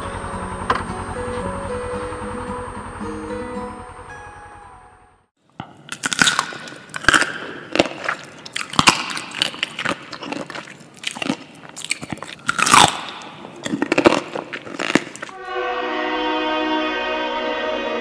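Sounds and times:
crunchy chewing: 0:05.5 - 0:15.4.

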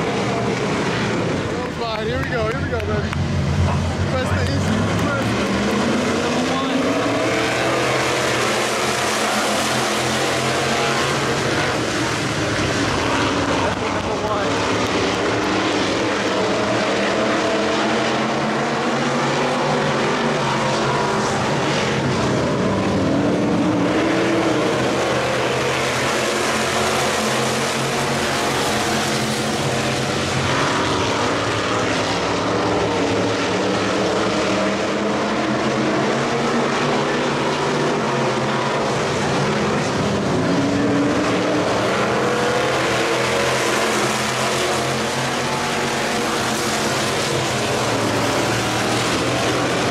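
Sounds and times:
race car engines revving: 0:00.0 - 0:49.9.

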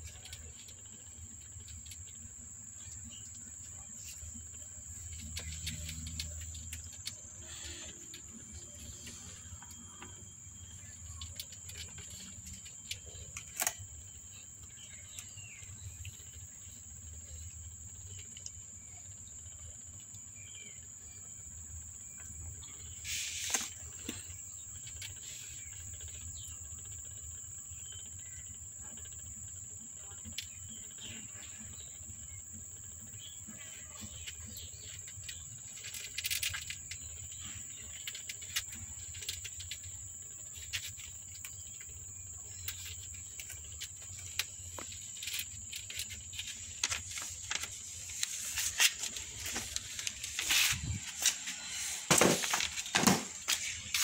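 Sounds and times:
low background hum: 0:00.0 - 0:54.0
high-pitched insect chirring: 0:20.3 - 0:54.0.

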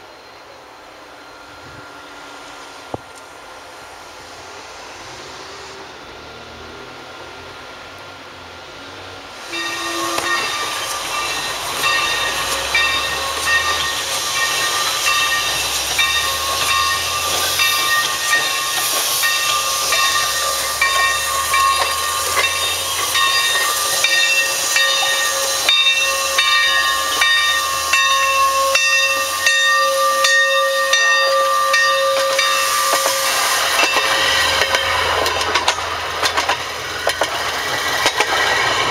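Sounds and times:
steam hissing: 0:00.0 - 0:38.9
steady whistling tones: 0:09.4 - 0:38.9.

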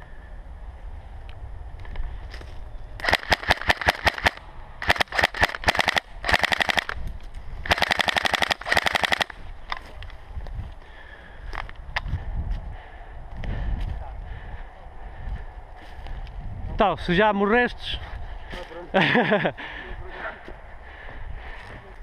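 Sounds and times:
airsoft rifle firing: 0:03.0 - 0:07.0, 0:07.7 - 0:09.4.

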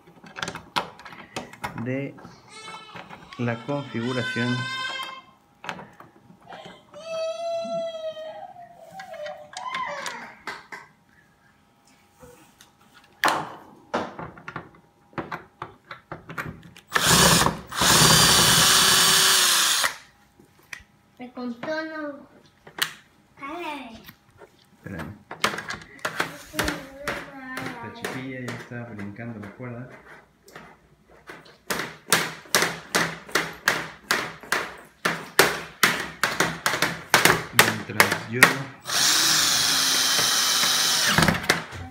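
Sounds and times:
power drill driving screws: 0:16.9 - 0:20.1, 0:38.8 - 0:41.6
handling clicks and knocks: 0:30.5 - 0:38.6.

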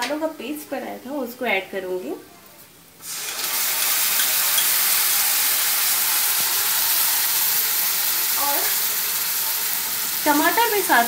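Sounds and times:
spice paste sizzling in oil: 0:03.0 - 0:11.0.

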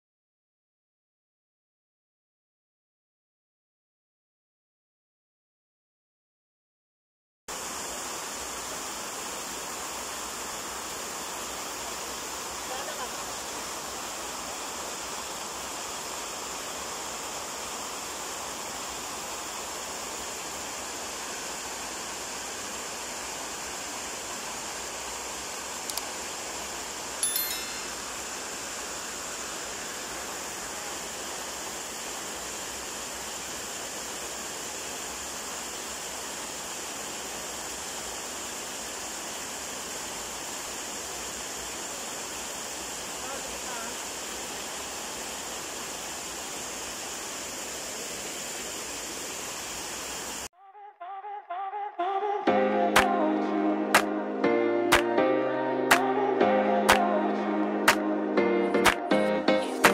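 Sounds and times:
running water rushing: 0:07.5 - 0:50.5
brief ringing ping: 0:27.2 - 0:28.2.

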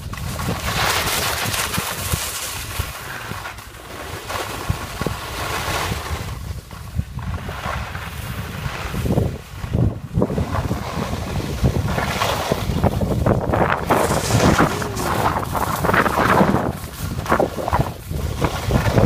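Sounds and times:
skis scraping over snow: 0:00.0 - 0:19.0
wind buffeting microphone: 0:06.2 - 0:19.0.

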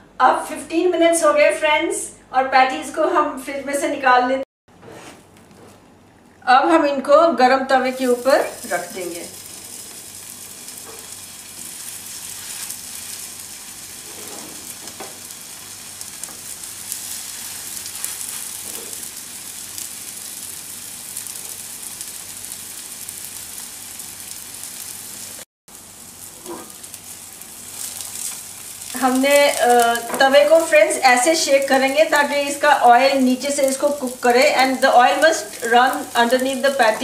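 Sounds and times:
patties sizzling in hot oil: 0:07.8 - 0:37.0.

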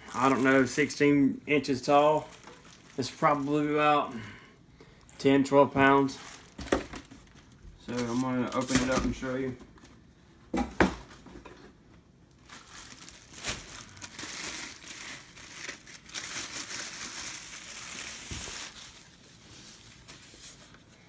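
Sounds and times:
plastic bag crinkling: 0:00.0 - 0:04.0, 0:05.7 - 0:09.3, 0:12.3 - 0:20.6.

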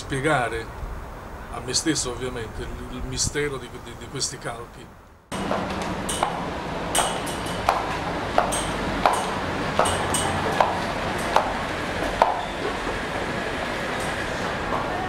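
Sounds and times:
background hum: 0:00.0 - 0:15.0
hard-soled footsteps on stairs: 0:05.3 - 0:14.9.

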